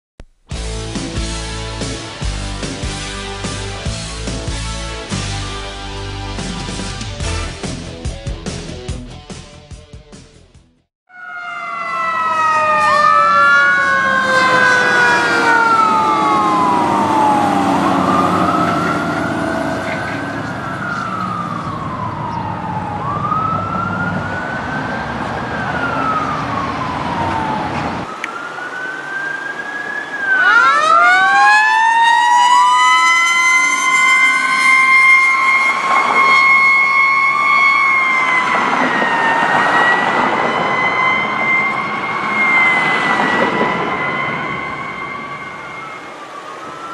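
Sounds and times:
fire engine sirens wailing: 0:11.1 - 0:46.9
truck engines: 0:11.2 - 0:46.9.

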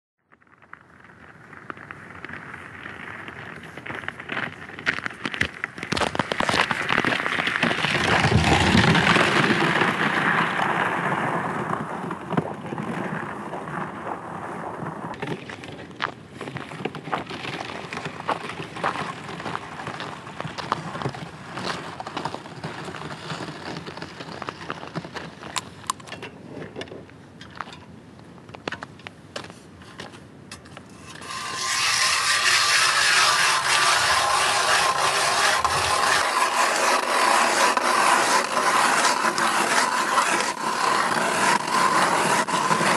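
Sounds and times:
footsteps crackling on ice: 0:00.2 - 0:26.0, 0:28.5 - 0:42.9
wind rumbling on microphone: 0:00.4 - 0:29.0, 0:30.9 - 0:36.6
sled scraping across ice: 0:02.5 - 0:25.6, 0:30.9 - 0:42.9
ice auger rasping: 0:31.0 - 0:42.9.

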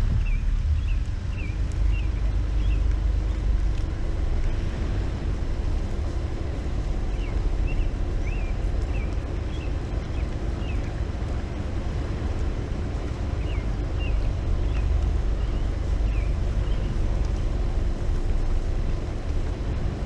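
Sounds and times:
songbird chirping: 0:00.0 - 0:05.0, 0:05.8 - 0:18.7
steady low rumble: 0:00.0 - 0:20.0.

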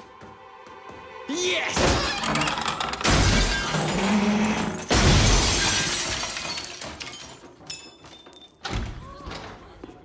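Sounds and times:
glass shattering: 0:01.8 - 0:08.7
wooden cases crashing to floor: 0:01.9 - 0:08.9.

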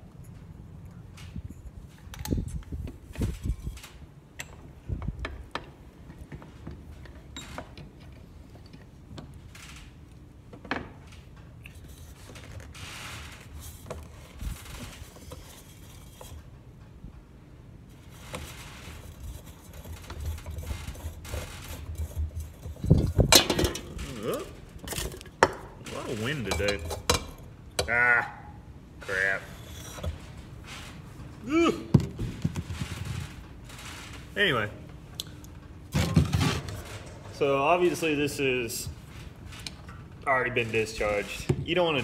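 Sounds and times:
metal scraping: 0:18.0 - 0:28.2, 0:29.0 - 0:31.4, 0:32.2 - 0:34.9, 0:35.9 - 0:41.5.

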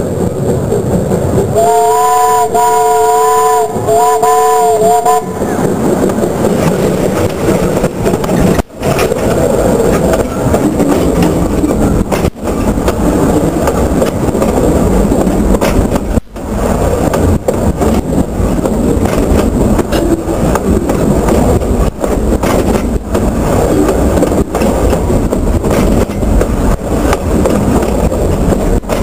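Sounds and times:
train wheels rumbling on rail: 0:00.0 - 0:29.0
steam locomotive chime whistle: 0:01.6 - 0:05.5.

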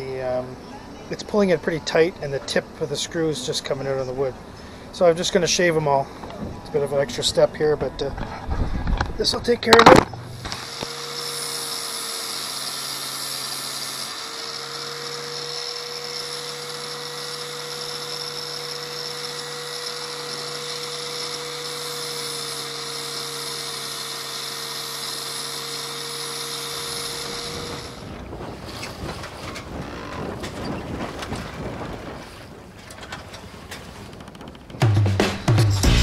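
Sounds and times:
rotary tool grinding screws: 0:09.8 - 0:28.1, 0:28.7 - 0:30.3.

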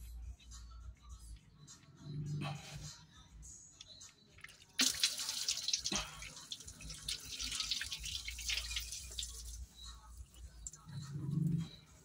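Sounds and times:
liquid stream splashing on floor: 0:04.8 - 0:09.5.

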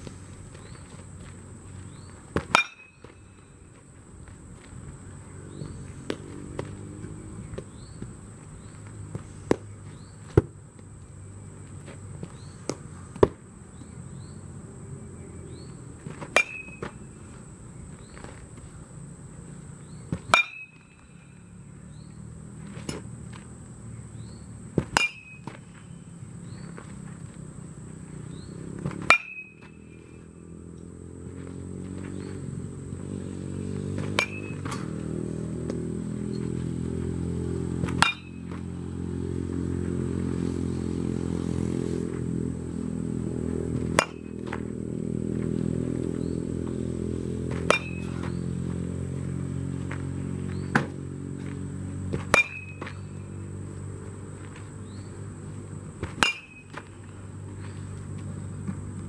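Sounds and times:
bat cracking on baseball: 0:00.0 - 0:10.9, 0:11.8 - 0:14.0, 0:28.4 - 0:33.2, 0:33.8 - 0:38.8, 0:42.0 - 0:53.2, 0:56.0 - 0:59.0.

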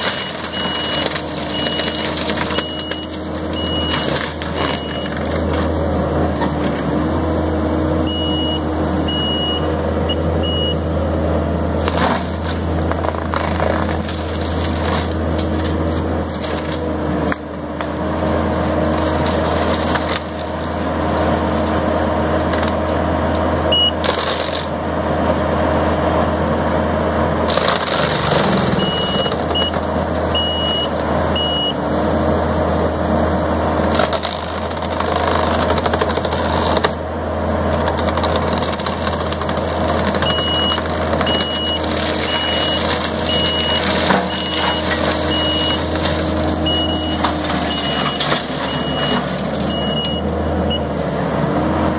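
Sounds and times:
diesel engine running hard: 0:00.0 - 0:51.9
backup alarm beeping: 0:08.1 - 0:10.8, 0:23.7 - 0:24.0, 0:28.8 - 0:29.8, 0:30.4 - 0:31.8, 0:40.3 - 0:45.9, 0:46.6 - 0:50.9.

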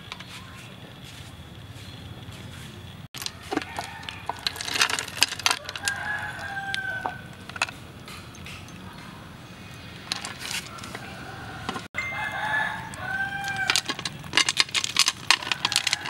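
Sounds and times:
rooster crowing: 0:03.2 - 0:07.4, 0:10.5 - 0:14.2, 0:15.3 - 0:16.0.

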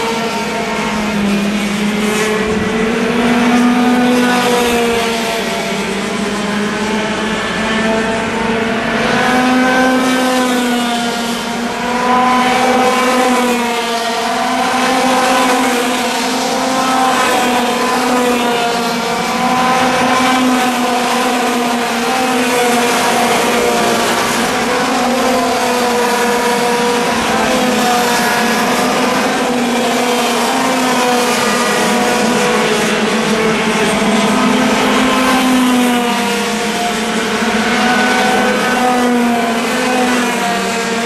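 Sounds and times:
racing kart engines buzzing: 0:00.0 - 0:41.0.

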